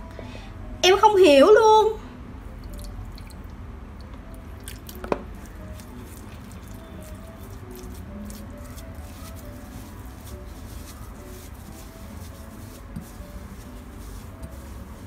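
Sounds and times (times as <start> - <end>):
water pouring onto powder: 2.6 - 3.5, 4.6 - 15.0
faint wet clicks: 2.6 - 6.8
fingers squishing wet snow: 4.6 - 15.0.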